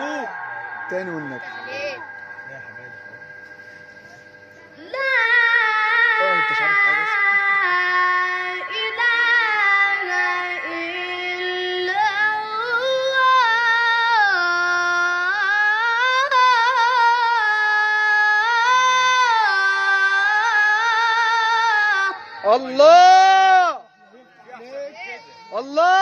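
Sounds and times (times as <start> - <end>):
boy chanting: 4.6 - 23.8.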